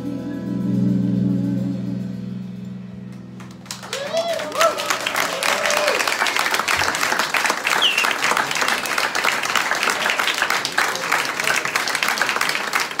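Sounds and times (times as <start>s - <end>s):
audience applauding: 3.4s - 13.0s
short high whistle: 7.7s - 8.2s.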